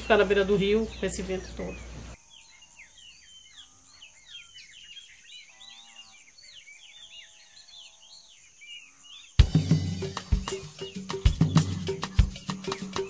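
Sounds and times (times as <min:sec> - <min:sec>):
small birds chirping: 0:00.0 - 0:13.0
music with percussion: 0:09.4 - 0:13.0.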